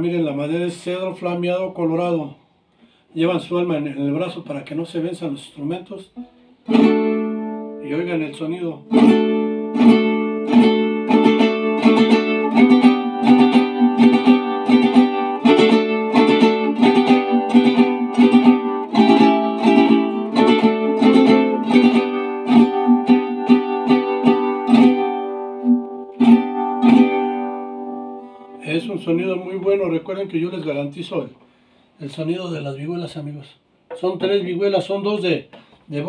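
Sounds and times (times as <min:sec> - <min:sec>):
vihuela strumming: 0:06.0 - 0:31.6.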